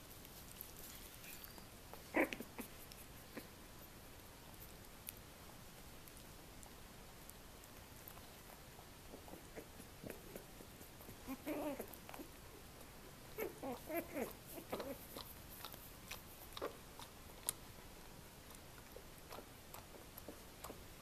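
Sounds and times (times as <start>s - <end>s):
puppies whimpering and grunting: 1.2s - 3.6s, 9.1s - 12.7s, 13.3s - 15.4s.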